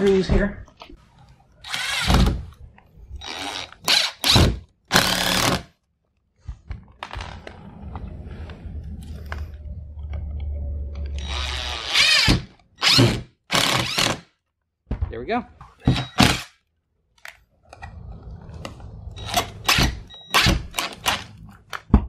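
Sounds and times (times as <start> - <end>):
cordless drill driving screws: 1.6 - 2.3, 3.2 - 5.6, 11.2 - 14.2.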